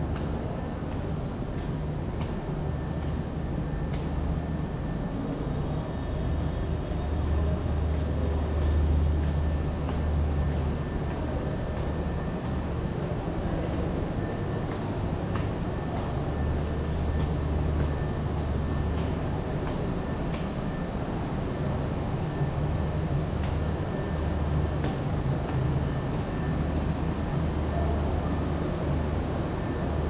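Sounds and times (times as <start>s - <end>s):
footsteps on stairs: 0.1s - 4.2s, 6.4s - 22.0s, 23.2s - 27.5s.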